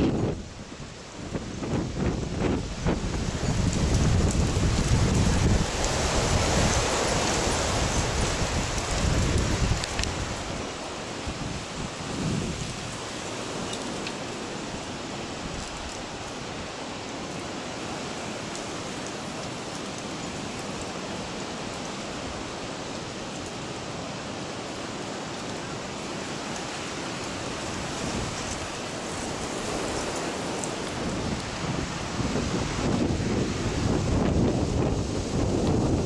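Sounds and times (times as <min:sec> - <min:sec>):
wind buffeting microphone: 0:00.0 - 0:16.8, 0:27.2 - 0:36.0
sea surf: 0:00.0 - 0:36.0
wind: 0:00.0 - 0:36.0.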